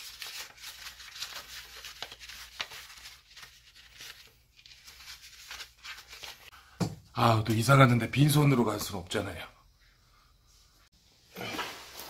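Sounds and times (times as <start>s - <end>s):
paper banknotes rustling: 0.0s - 6.6s.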